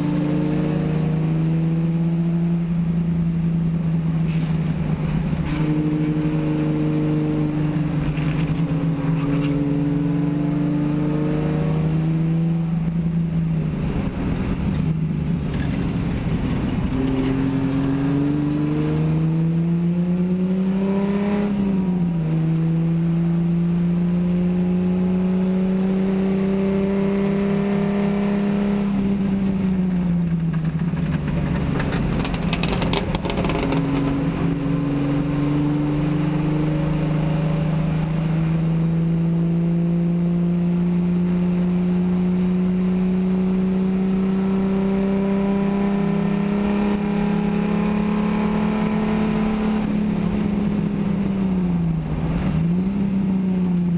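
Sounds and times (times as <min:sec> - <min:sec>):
race car engine revving: 0:00.0 - 0:53.9
clattering: 0:30.5 - 0:34.1.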